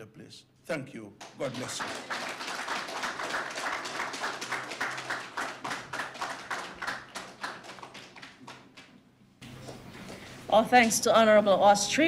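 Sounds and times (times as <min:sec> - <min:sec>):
audience applauding: 0:01.2 - 0:09.0.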